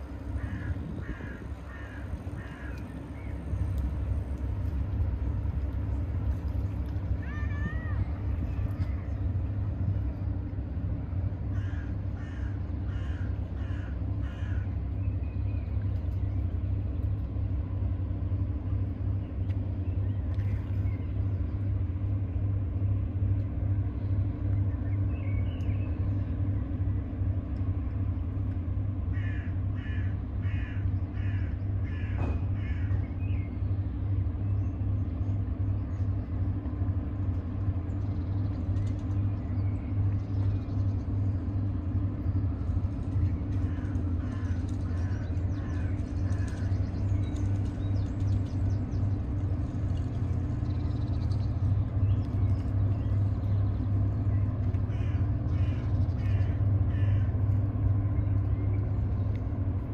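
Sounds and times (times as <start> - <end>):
bird calling: 0.0 - 4.1, 7.1 - 9.4, 11.5 - 16.4, 29.1 - 33.6, 38.0 - 59.3
steady low rumble: 0.0 - 59.9.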